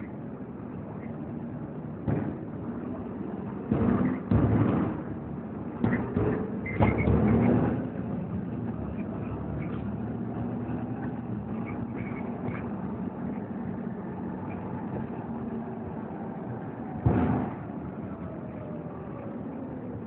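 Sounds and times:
bus engine drone: 0.0 - 20.0
bus body knocking and rattling: 1.8 - 15.8.

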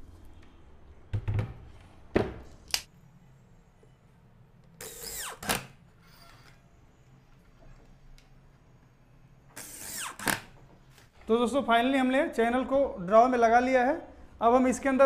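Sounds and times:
electric drill driving a screw: 4.8 - 6.5.

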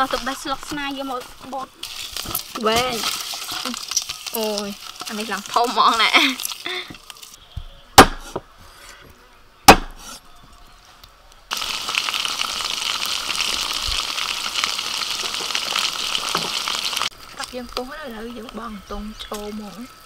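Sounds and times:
fish sizzling in hot oil: 0.0 - 7.4, 11.5 - 20.0
knife strikes on wooden board: 8.0 - 8.4, 9.7 - 10.1.

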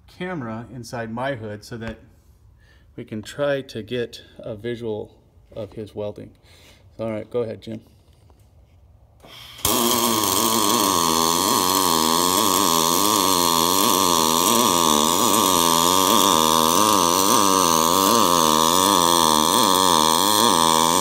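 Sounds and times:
welding arc buzzing: 9.2 - 21.0.

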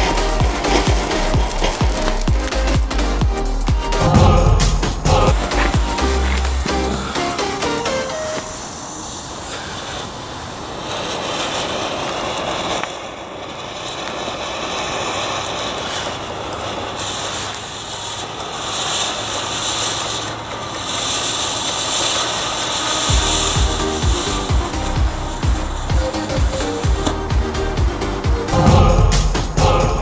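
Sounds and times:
thumping bass music beat: 0.0 - 8.0, 23.1 - 30.0
firework sparks hissing: 0.0 - 30.0.

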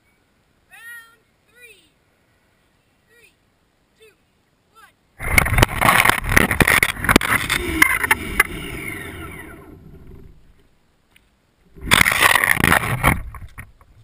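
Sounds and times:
toy truck tumbling on asphalt: 5.2 - 10.7, 11.7 - 14.0
electric motor whine: 7.2 - 10.4.

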